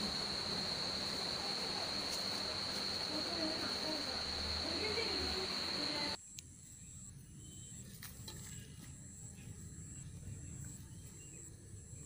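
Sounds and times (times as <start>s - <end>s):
high-pitched insect trill: 0.0s - 7.8s.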